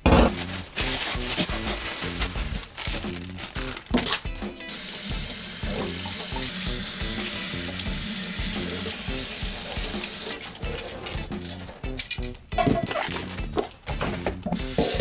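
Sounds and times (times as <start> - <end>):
tap water running onto lettuce: 4.7 - 11.6.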